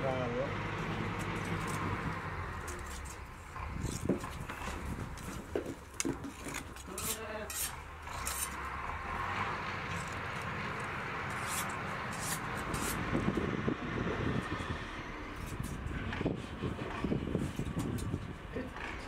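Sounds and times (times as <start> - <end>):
low engine hum: 0.0 - 19.0
hand shears snipping fleece: 6.0 - 8.6, 9.9 - 13.1.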